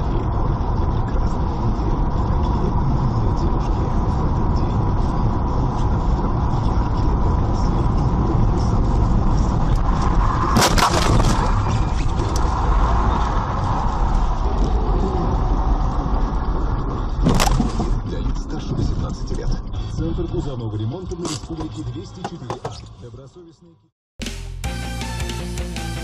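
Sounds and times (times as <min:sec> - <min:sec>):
car engine and road noise: 0:00.0 - 0:23.9
loud collision crash: 0:10.2 - 0:12.6.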